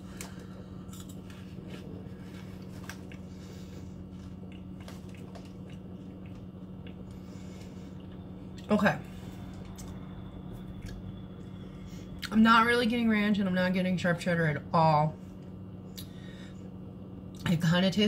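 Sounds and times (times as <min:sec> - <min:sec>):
steady low hum: 0:00.0 - 0:18.0
person chewing crunchy snacks: 0:00.1 - 0:08.7.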